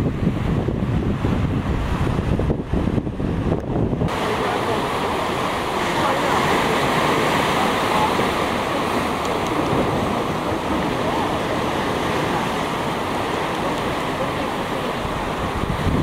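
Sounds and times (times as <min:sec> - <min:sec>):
ocean surf churning: 0:00.0 - 0:16.0.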